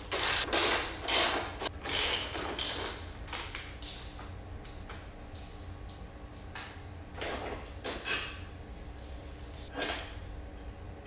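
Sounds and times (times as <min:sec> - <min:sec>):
ratchet wrench clicking: 0:00.1 - 0:03.0.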